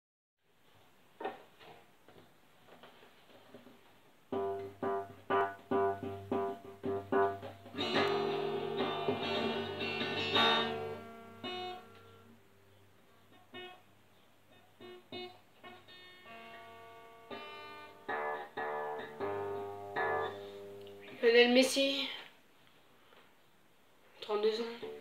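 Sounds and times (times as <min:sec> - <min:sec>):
guitar single picked notes: 0:04.3 - 0:12.4, 0:14.8 - 0:21.2
acoustic guitar strumming: 0:04.3 - 0:12.5, 0:14.8 - 0:21.1.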